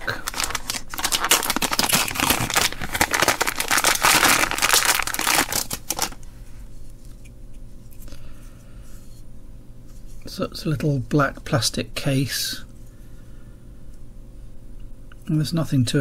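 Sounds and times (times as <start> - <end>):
plastic packet crinkling and tearing: 0.0 - 6.2
faint handling sounds: 0.0 - 11.5.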